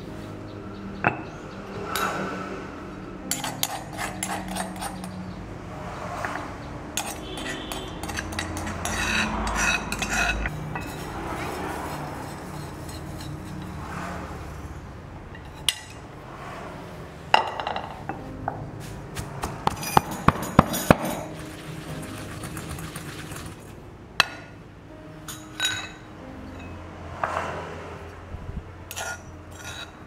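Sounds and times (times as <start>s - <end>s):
pestle striking metal mortar: 19.1s - 23.6s.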